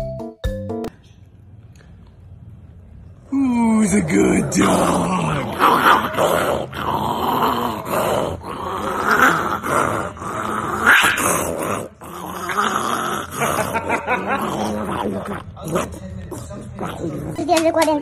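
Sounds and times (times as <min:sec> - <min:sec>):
small dog growling: 0:03.4 - 0:17.5.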